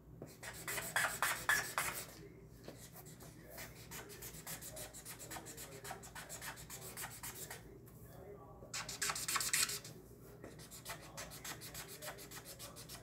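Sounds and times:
marker scribbling on paper: 0:00.3 - 0:07.6, 0:08.8 - 0:13.0.

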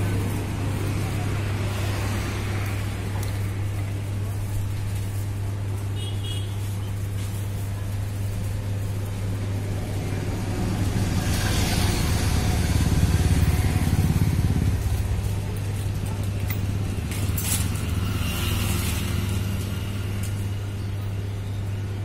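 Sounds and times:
vehicle engine running: 0:07.6 - 0:21.8.

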